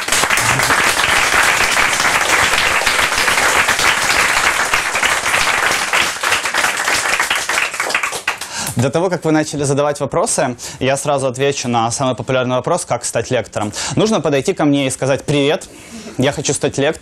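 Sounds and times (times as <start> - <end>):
audience applauding: 0.0 - 8.6.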